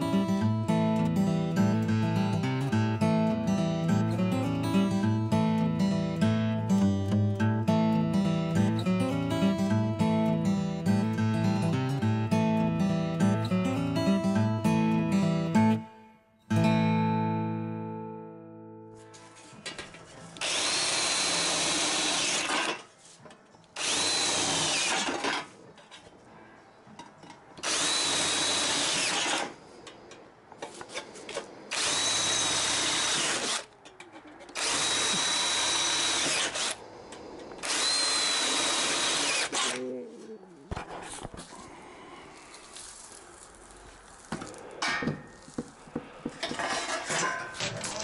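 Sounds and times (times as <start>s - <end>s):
cordless drill whining through steel: 20.4s - 22.8s, 23.8s - 25.5s, 27.6s - 29.6s, 31.3s - 33.8s, 34.5s - 39.8s.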